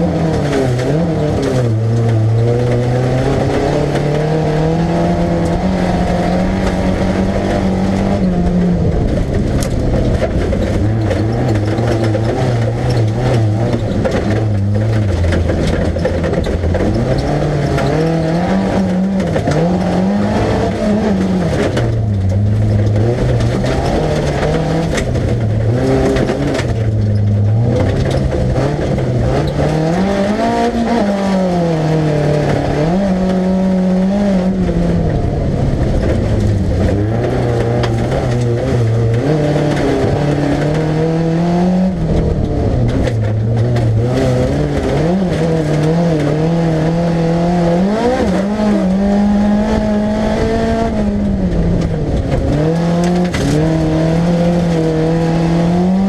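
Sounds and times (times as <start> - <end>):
car engine revving: 0.0 - 56.0
tyre and dirt noise: 0.0 - 56.0.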